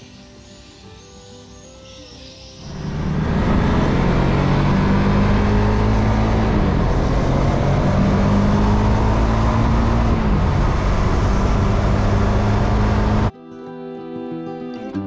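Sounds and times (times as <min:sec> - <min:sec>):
motorcycle engine running: 0:02.6 - 0:13.3
wind and road noise: 0:02.6 - 0:13.3.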